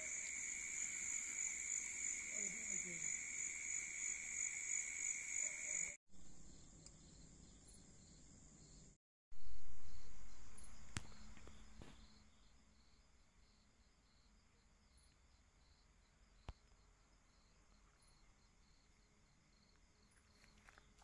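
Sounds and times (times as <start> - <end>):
crickets trilling: 0.0 - 8.8
faint insect hum: 0.0 - 21.0.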